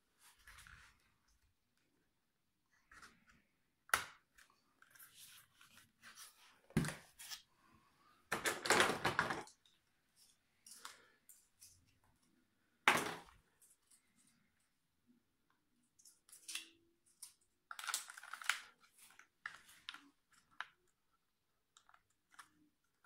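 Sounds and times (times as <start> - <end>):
plastic parts clicking and knocking: 8.3 - 9.7.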